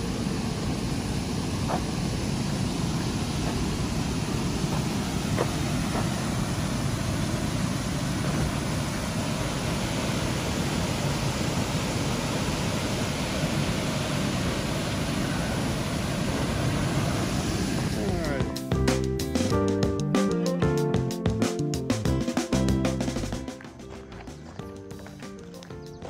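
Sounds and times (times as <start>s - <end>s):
water rushing over dam: 0.0s - 18.6s.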